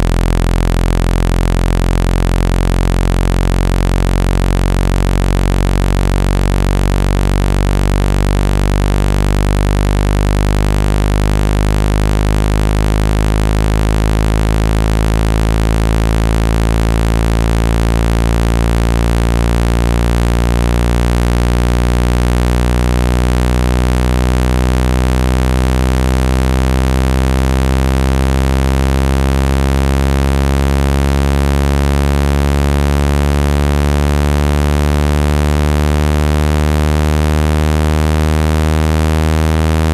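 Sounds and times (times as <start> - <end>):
low synthetic buzzing tone: 0.0 - 39.9.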